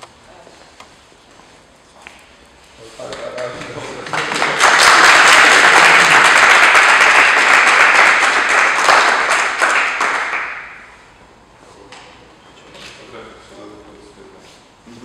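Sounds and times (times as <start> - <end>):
group applauding: 3.2 - 11.0.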